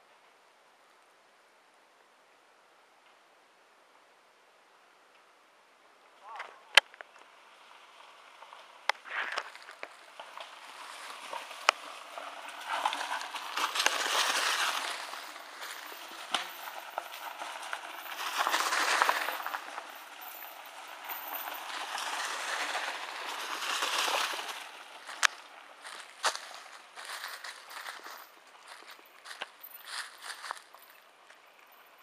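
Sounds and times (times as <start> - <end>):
bike tyres crunching through leaves: 7.1 - 32.0
bike clicks and rattles: 8.4 - 31.9.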